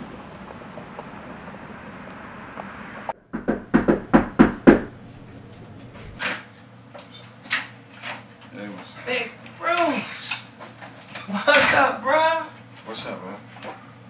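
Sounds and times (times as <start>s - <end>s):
steady background hum: 0.0s - 14.0s
sharp knocks: 3.1s - 5.0s
softer knock: 3.3s - 4.9s.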